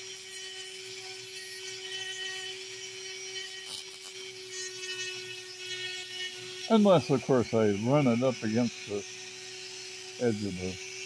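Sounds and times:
rotary tool sanding stone: 0.0s - 11.0s.

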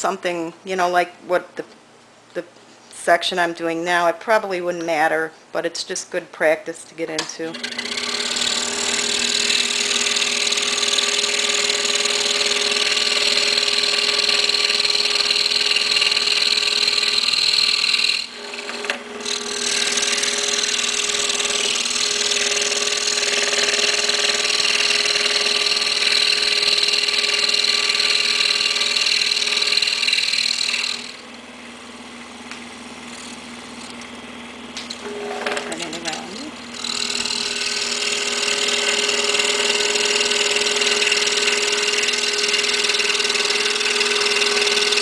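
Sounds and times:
saw blade cutting wood: 7.5s - 31.2s, 34.8s - 45.0s
scroll saw motor hum: 7.5s - 45.0s.

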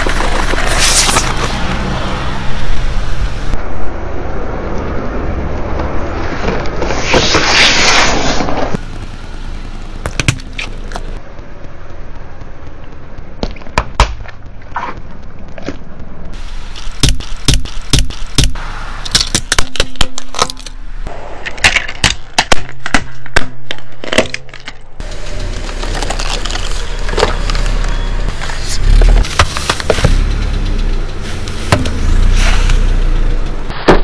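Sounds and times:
tyre crushing objects on asphalt: 0.0s - 2.0s, 10.0s - 11.2s, 12.0s - 20.8s, 21.5s - 30.4s
car tyre rumble: 0.0s - 34.0s.

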